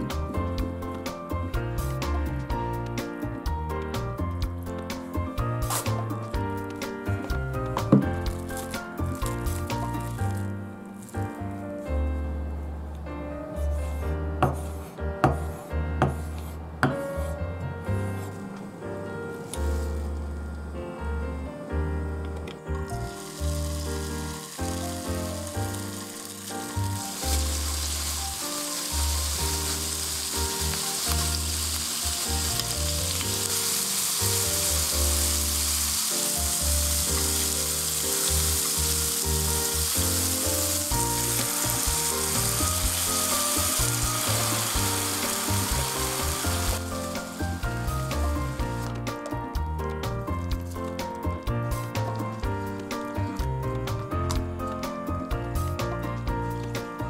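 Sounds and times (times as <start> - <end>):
background music: 0.0 - 57.0
bacon sizzling in a frying pan: 23.1 - 48.9.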